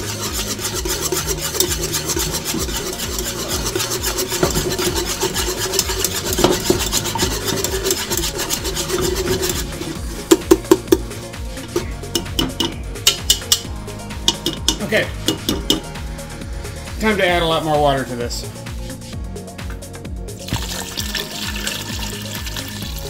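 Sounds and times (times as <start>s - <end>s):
whisk scraping a pot: 0.0s - 13.7s.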